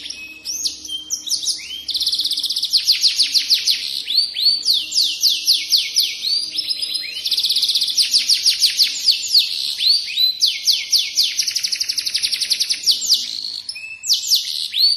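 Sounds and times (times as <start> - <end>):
canary singing trills: 0.0 - 14.9.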